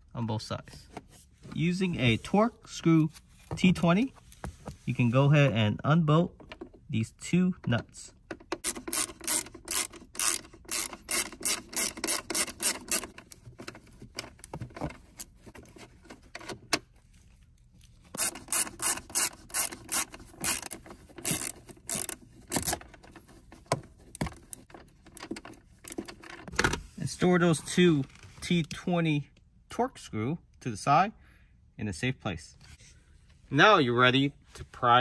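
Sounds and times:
screwdriver clicking and rubbing: 8.6 - 13.3, 18.2 - 23.0.

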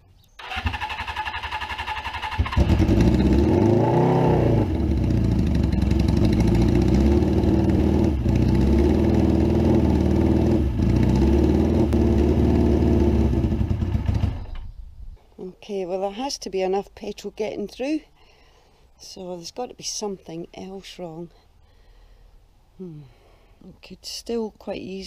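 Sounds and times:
motorcycle engine running: 0.4 - 14.6.

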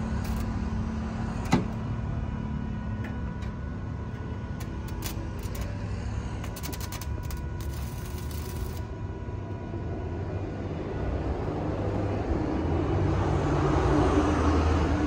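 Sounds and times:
arc welding crackles: 0.0 - 1.4, 4.3 - 8.9
low mechanical rumble: 0.0 - 15.0.

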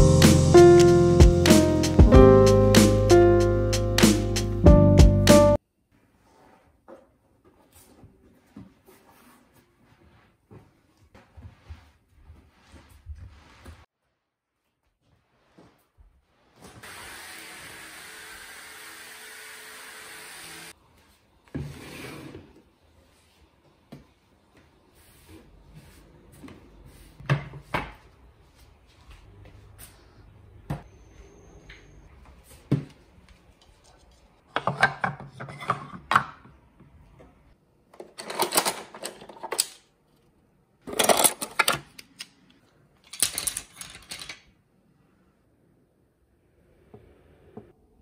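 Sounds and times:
kitchenware knocks and clicks: 34.5 - 36.6.

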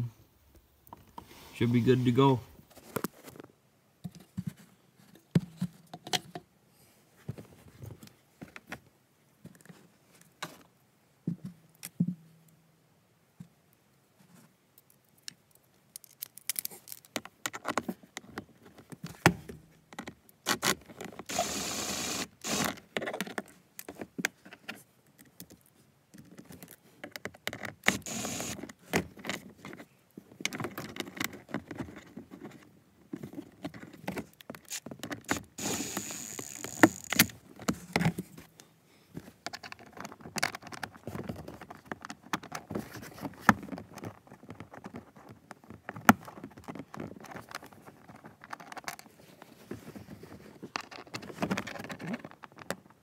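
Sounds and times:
power driver whining: 21.3 - 22.7, 27.8 - 28.6, 35.3 - 37.3.

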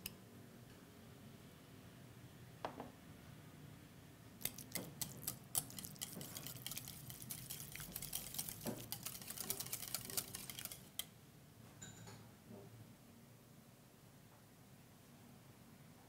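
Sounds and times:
whisk clicking against glass bowl: 4.4 - 11.1.

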